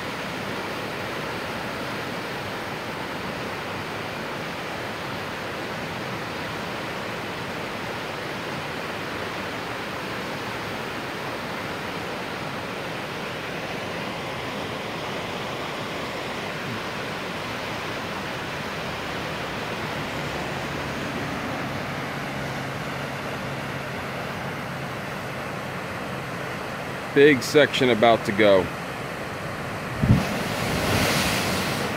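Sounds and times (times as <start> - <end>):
floodwater rushing down creek: 0.0 - 31.9.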